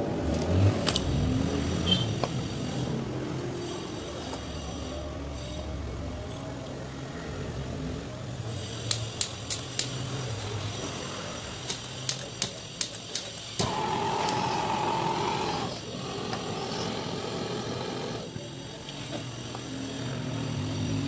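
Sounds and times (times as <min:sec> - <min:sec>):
torch igniter clicking: 0:08.8 - 0:10.0, 0:11.6 - 0:18.1
torch flame hissing: 0:10.9 - 0:18.8.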